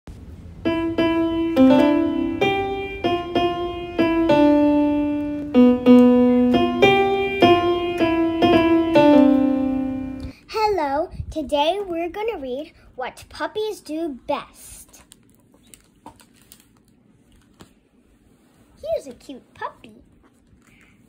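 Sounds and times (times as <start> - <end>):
solo piano melody: 0.4 - 10.3.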